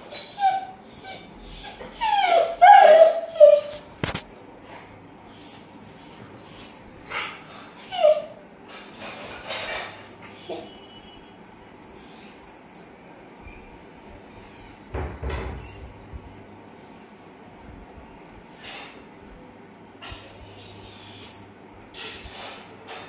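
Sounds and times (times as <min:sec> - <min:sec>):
dog whining: 0:00.0 - 0:04.2, 0:05.2 - 0:10.9, 0:12.0 - 0:12.5, 0:20.0 - 0:23.0.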